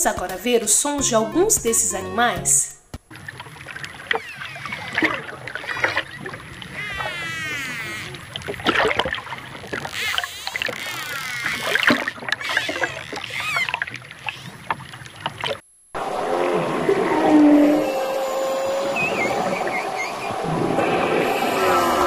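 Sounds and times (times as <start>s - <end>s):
dolphins whistling: 3.9s - 8.7s, 9.5s - 14.6s, 16.0s - 22.0s.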